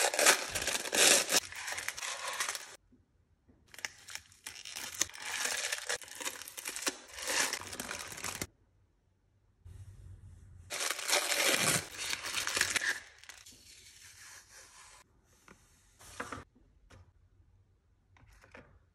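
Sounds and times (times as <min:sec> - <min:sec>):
wrapping paper crinkling: 0:00.0 - 0:02.8, 0:03.7 - 0:08.5, 0:10.7 - 0:13.4.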